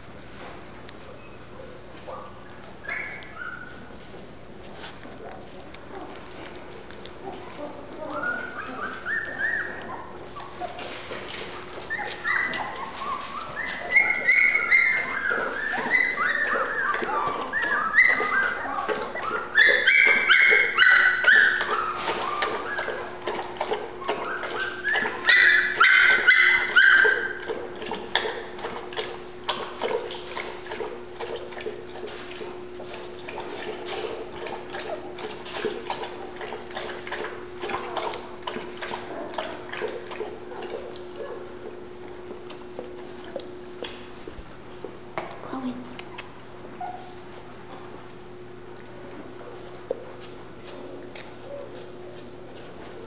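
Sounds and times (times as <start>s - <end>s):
puppies nursing clicks and smacks: 0.0s - 53.0s
puppies whimpering and squealing: 2.1s - 4.0s, 7.2s - 41.8s, 46.1s - 47.9s.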